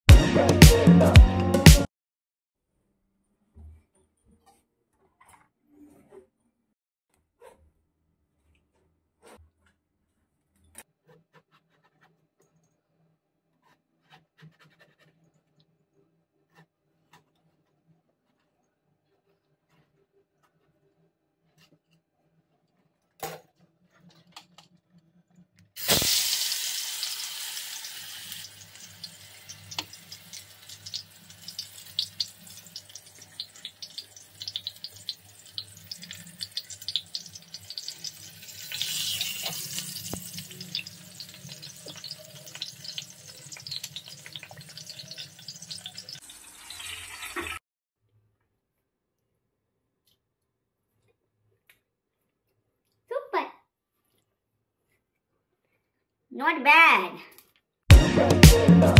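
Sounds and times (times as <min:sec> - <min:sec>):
food hitting hot oil hiss: 0:25.8 - 0:46.2
sizzling with crackles and pops: 0:25.8 - 0:47.6.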